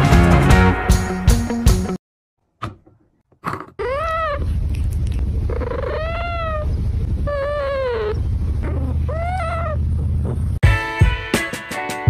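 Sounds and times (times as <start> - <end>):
cat meowing: 3.8 - 4.6, 5.5 - 6.7, 7.3 - 9.8
steady low rumble: 4.3 - 10.6.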